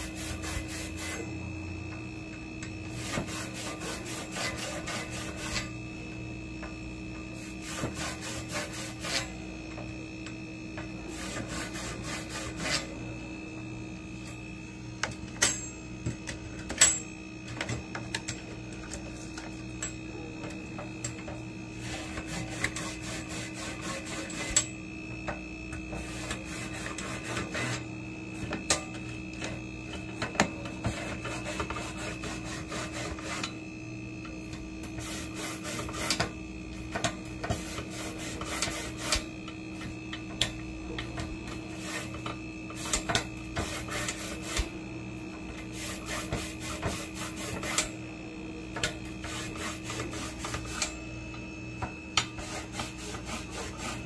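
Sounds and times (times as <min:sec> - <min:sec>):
steady hum: 0:00.0 - 0:54.0
toothbrush scrubbing metal coils: 0:02.9 - 0:05.7, 0:07.4 - 0:09.3, 0:11.1 - 0:12.9, 0:21.8 - 0:24.7, 0:25.9 - 0:27.8, 0:30.8 - 0:33.6, 0:34.9 - 0:36.3, 0:37.5 - 0:39.3, 0:41.7 - 0:44.7, 0:45.7 - 0:48.0, 0:49.2 - 0:51.0, 0:52.2 - 0:54.0
tool clicking on metal tubes: 0:15.0 - 0:21.4, 0:24.3 - 0:24.7, 0:42.0 - 0:44.7, 0:46.3 - 0:47.9.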